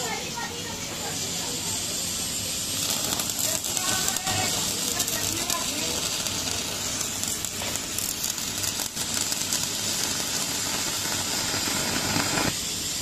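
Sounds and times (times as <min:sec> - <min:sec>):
crackling welding arc: 0:00.0 - 0:13.0.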